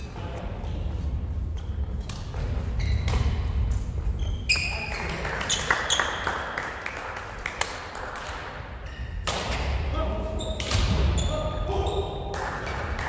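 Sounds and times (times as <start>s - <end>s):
shoes squeaking on wooden floor: 2.6s - 3.4s.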